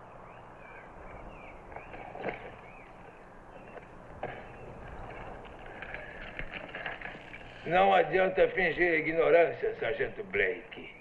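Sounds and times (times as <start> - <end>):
steady hiss and hum: 0.0 - 11.0
light clicks or rustles: 1.7 - 7.6.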